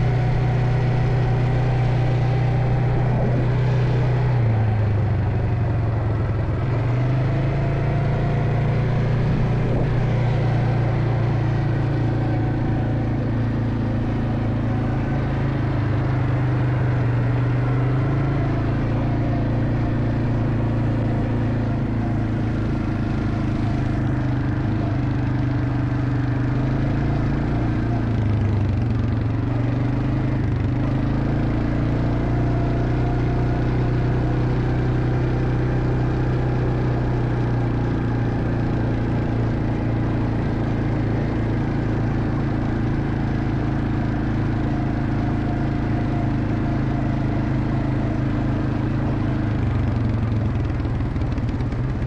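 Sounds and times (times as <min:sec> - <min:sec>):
vehicle engine running: 0:00.0 - 0:52.0.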